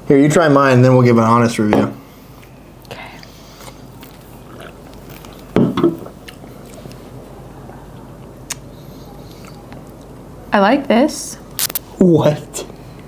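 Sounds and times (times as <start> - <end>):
people sipping and swallowing: 2.4 - 7.2
cans knocking on a table: 5.6 - 6.0.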